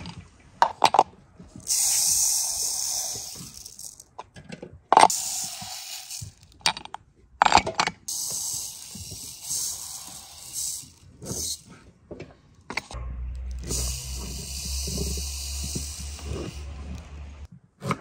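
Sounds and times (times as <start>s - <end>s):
sugar pouring into bottles: 1.6s - 4.0s, 8.1s - 11.6s.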